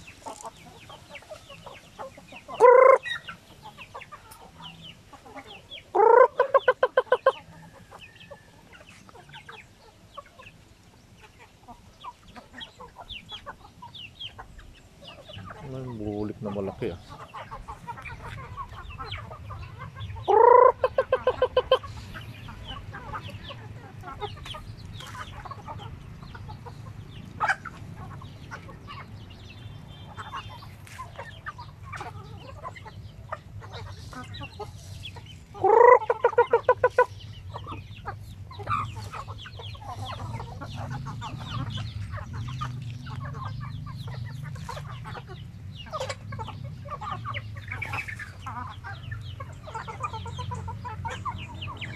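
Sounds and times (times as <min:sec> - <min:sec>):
hens clucking: 0:00.0 - 0:51.9
pecking ticks on ground: 0:00.0 - 0:51.9
loud bird call: 0:02.5 - 0:03.4, 0:05.5 - 0:07.5, 0:16.4 - 0:25.8, 0:33.6 - 0:51.9.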